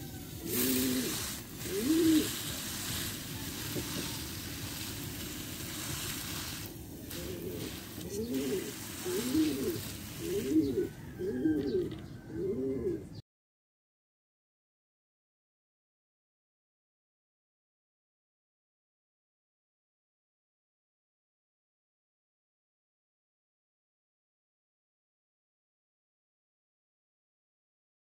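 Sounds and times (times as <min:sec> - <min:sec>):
dove cooing: 0:00.0 - 0:04.9, 0:05.8 - 0:13.2
water splashing hiss: 0:00.0 - 0:11.0.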